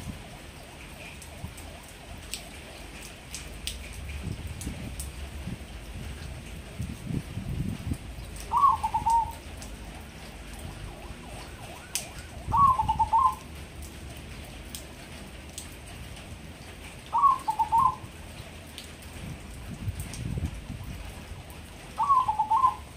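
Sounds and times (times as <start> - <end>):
dove cooing: 8.5 - 9.4, 12.5 - 13.4, 17.1 - 18.0, 22.0 - 22.9.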